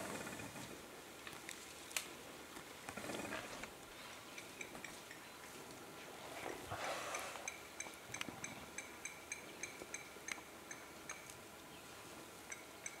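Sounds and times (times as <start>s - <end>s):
faint background hiss: 0.0s - 13.0s
faint high-pitched chirps: 7.1s - 11.9s.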